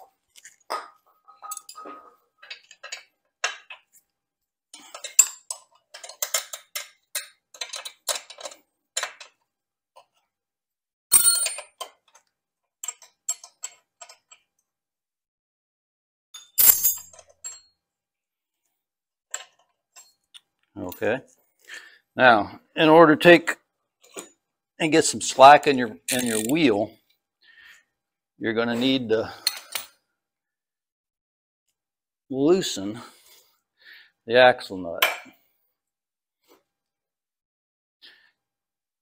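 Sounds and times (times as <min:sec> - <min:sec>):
wrenches clinking on metal: 0:00.3 - 0:04.0, 0:04.8 - 0:09.4, 0:11.1 - 0:12.2, 0:12.8 - 0:14.5, 0:16.4 - 0:17.7, 0:26.0 - 0:26.7, 0:29.4 - 0:29.9
metallic clanks: 0:00.7 - 0:03.7.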